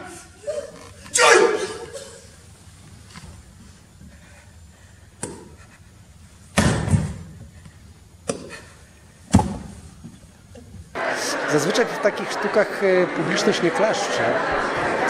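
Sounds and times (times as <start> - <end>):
bodies thudding on wooden stage: 6.5 - 7.5, 9.2 - 10.2.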